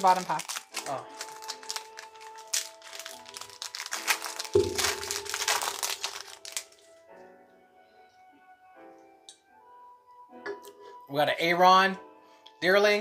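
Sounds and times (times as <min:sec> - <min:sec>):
foil wrapper crinkling: 0:00.0 - 0:06.9
background music: 0:00.0 - 0:13.0.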